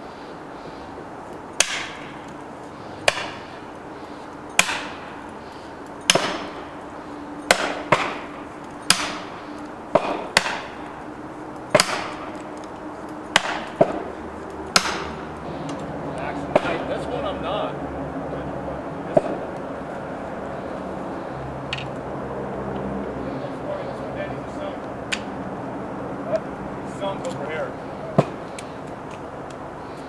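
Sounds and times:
hammer striking felling wedges: 0:01.6 - 0:02.4, 0:03.0 - 0:03.6, 0:04.5 - 0:05.3, 0:06.0 - 0:06.8, 0:07.4 - 0:11.0, 0:11.7 - 0:12.5, 0:13.3 - 0:14.1, 0:14.7 - 0:15.3, 0:16.5 - 0:16.9, 0:19.1 - 0:19.5, 0:28.2 - 0:28.4.

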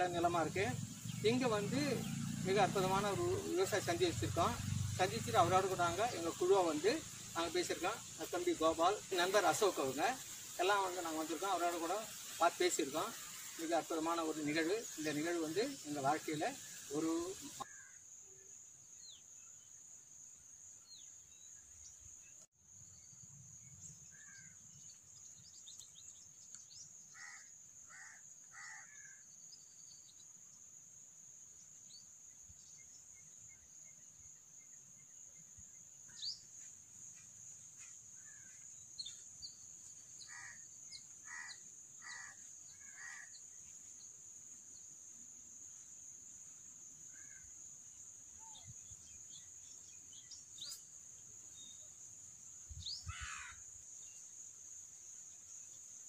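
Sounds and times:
high insect drone: 0:00.0 - 0:56.0
crow cawing: 0:17.7 - 0:18.0, 0:27.1 - 0:29.2, 0:40.2 - 0:43.4, 0:53.1 - 0:53.6
faint small bird chirps: 0:31.7 - 0:44.1, 0:48.3 - 0:52.0.

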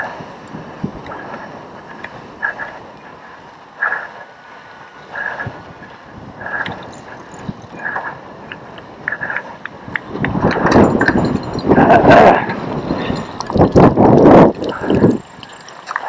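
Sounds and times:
loud rough rattling: 0:09.0 - 0:16.0.

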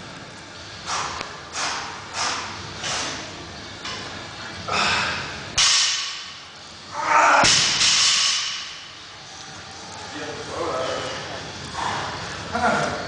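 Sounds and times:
person breathing heavily: 0:04.5 - 0:05.4.

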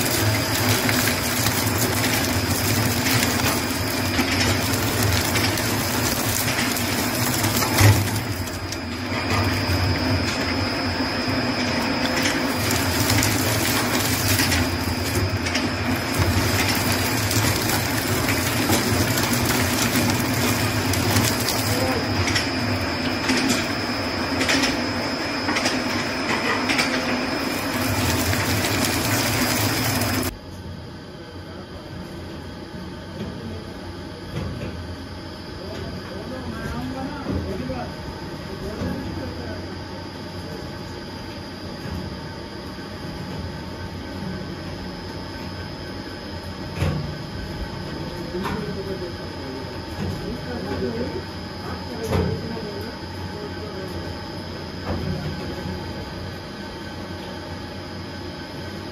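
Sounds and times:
shredder high whine: 0:00.0 - 0:30.4
wood shredder crackling and grinding: 0:00.0 - 0:30.4.

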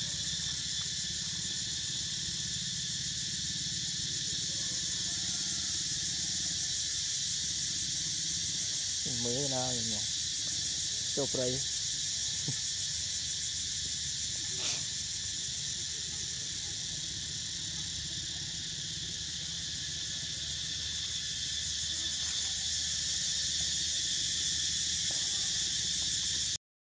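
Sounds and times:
insect chorus buzzing: 0:00.0 - 0:26.6.

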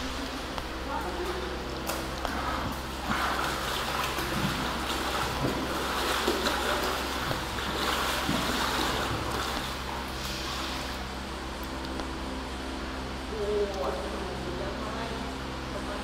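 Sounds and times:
steady low hum: 0:00.0 - 0:16.0
water splashing and lapping: 0:01.0 - 0:11.1.

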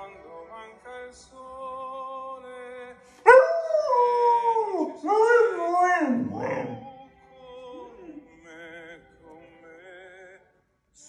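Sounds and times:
opera tenor singing: 0:00.0 - 0:10.5
puppy howling: 0:03.3 - 0:06.9.

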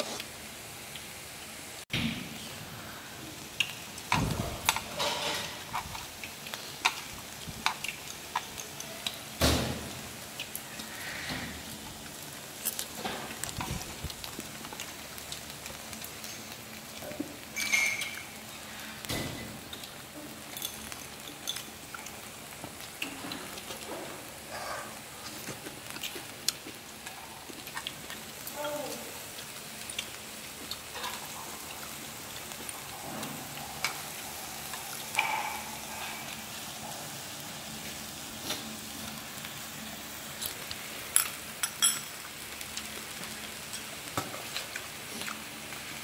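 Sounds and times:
meat and vegetables sizzling: 0:00.0 - 0:46.0
utensils clattering against pan: 0:04.2 - 0:05.9, 0:17.6 - 0:18.3.

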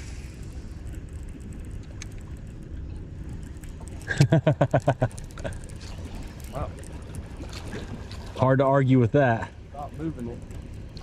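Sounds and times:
low steady background rumble: 0:00.0 - 0:11.0
man laughing: 0:04.1 - 0:05.6.

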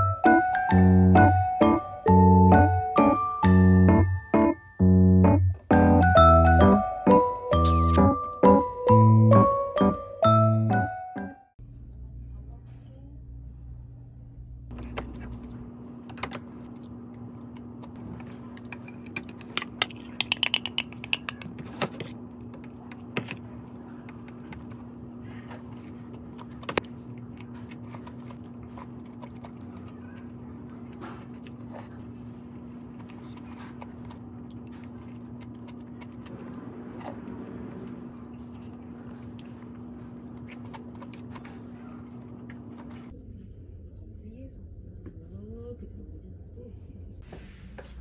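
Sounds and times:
low hum with held tone: 0:11.6 - 0:47.2.

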